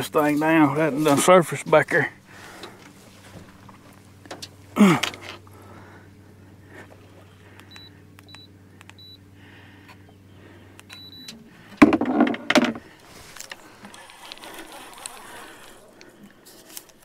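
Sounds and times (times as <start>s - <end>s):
remote short beeps: 7.7s - 9.2s, 10.9s - 11.3s
electric motor humming: 12.8s - 17.0s.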